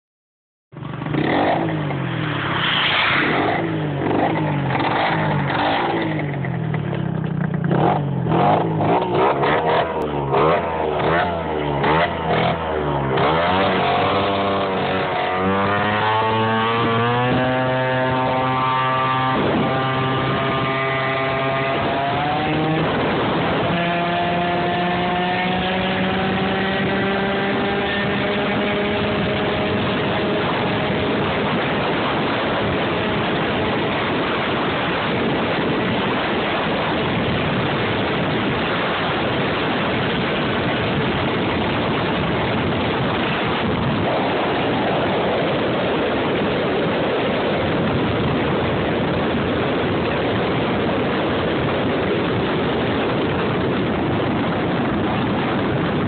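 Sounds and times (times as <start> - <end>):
two-stroke scooter engine revving: 0.8 - 2.5, 3.3 - 35.4.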